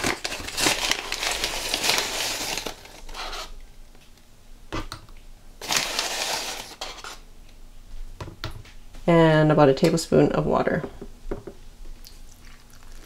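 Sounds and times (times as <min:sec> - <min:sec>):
paper liner crinkling: 0:00.0 - 0:03.6, 0:05.6 - 0:07.2.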